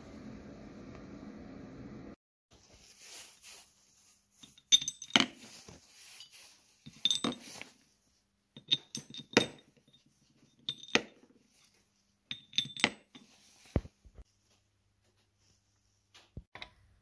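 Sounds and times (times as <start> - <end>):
metal studs clinking on metal: 4.4 - 5.4, 6.2 - 7.6, 8.6 - 10.0, 10.6 - 11.2, 12.3 - 13.3.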